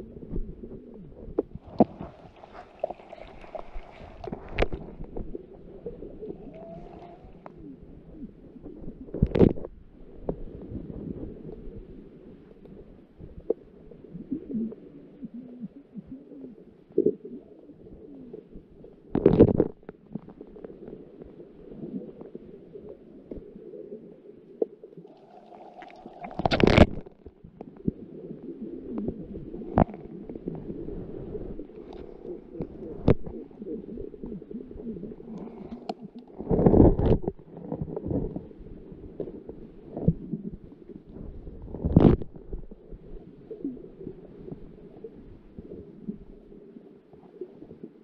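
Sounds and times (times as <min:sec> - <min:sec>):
muffled underwater rumble: 0:00.0 - 0:48.0
small scrapes and clicks: 0:01.4 - 0:05.4, 0:09.1 - 0:10.4, 0:19.1 - 0:20.9, 0:25.8 - 0:28.0, 0:29.0 - 0:30.7, 0:31.6 - 0:33.6, 0:35.2 - 0:38.5, 0:41.6 - 0:42.7.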